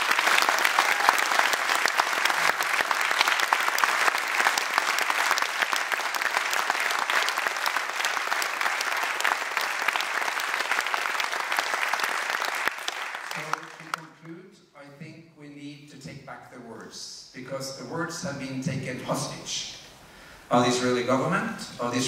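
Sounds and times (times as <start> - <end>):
audience applauding: 0.0 - 14.2.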